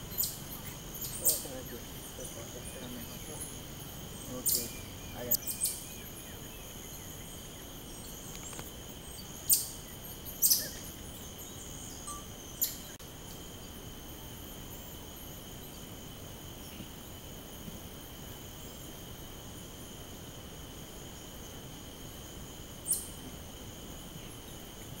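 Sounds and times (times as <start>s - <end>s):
insect chorus droning: 0.0s - 25.0s
animal chirps: 4.2s - 5.9s, 10.4s - 11.0s.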